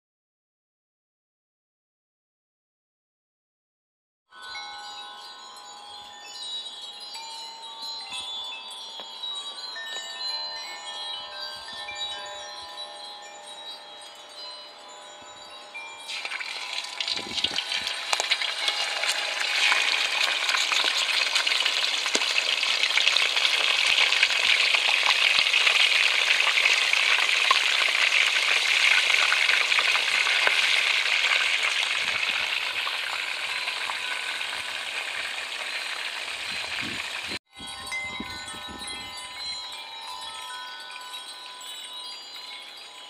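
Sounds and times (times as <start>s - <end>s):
fish frying in hot oil: 16.1s - 37.4s.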